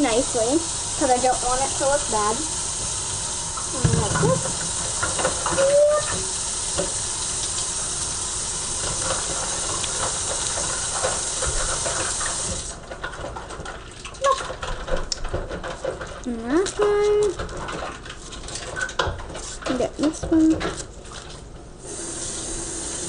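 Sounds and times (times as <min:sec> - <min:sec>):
tap water running into sink: 0:00.0 - 0:16.0, 0:21.9 - 0:23.0
pan being washed: 0:00.0 - 0:23.0.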